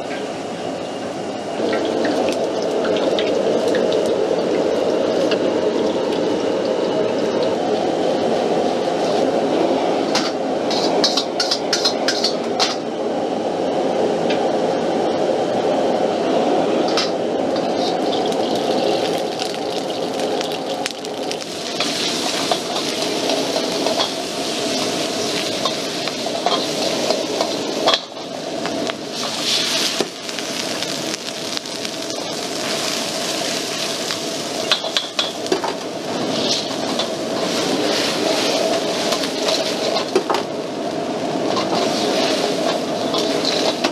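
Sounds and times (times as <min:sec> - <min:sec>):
gas burner rushing: 0:00.0 - 0:43.9
food sizzling in hot oil: 0:10.2 - 0:12.4, 0:17.5 - 0:43.9
metal ladle scraping wok: 0:10.7 - 0:12.4, 0:17.6 - 0:19.0, 0:21.6 - 0:28.3, 0:36.2 - 0:40.2, 0:41.5 - 0:43.9.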